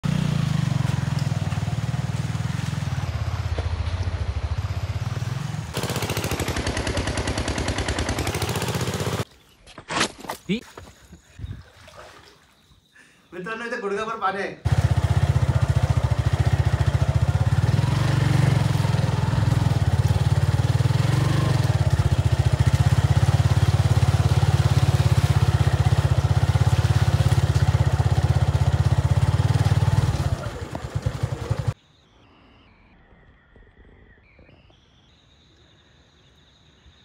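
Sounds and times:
motorcycle engine running: 0.0s - 9.3s, 14.7s - 31.8s.

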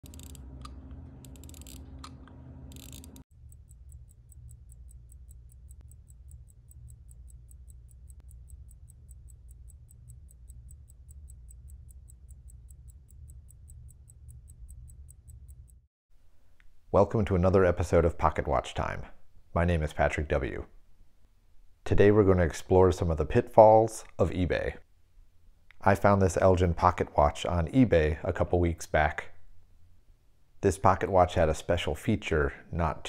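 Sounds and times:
pocket watch ticking: 0.0s - 1.8s, 2.7s - 15.9s
watch crown winding clicks: 0.0s - 15.8s
low steady hum: 0.0s - 33.0s.

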